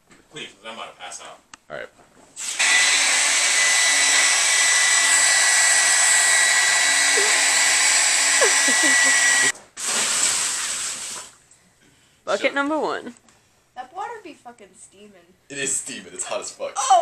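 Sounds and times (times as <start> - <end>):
hair dryer blowing air: 2.4 - 10.2.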